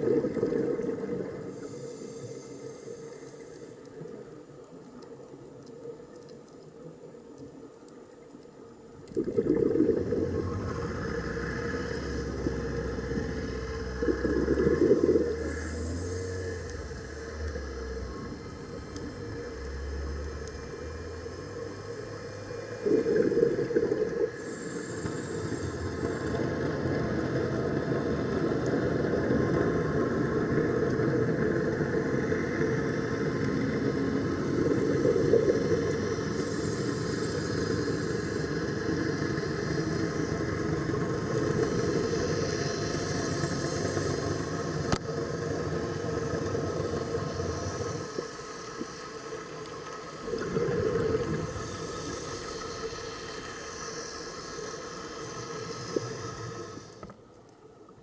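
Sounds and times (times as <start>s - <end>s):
bubbling exhalations: 0.0s - 1.4s, 9.1s - 19.5s, 22.8s - 24.7s
regulator hissing inhalations: 1.4s - 4.0s, 9.5s - 27.3s, 34.2s - 57.2s.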